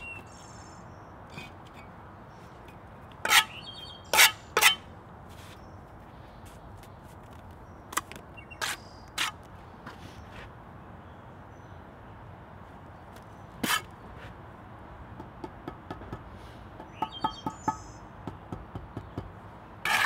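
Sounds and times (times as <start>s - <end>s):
trowel scraping brick and mortar: 3.2s - 4.9s, 8.0s - 10.0s, 13.6s - 13.9s.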